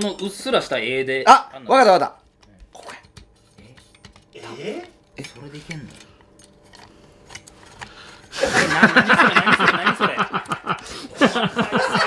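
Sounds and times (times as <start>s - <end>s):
hearty laughter: 8.3s - 12.0s.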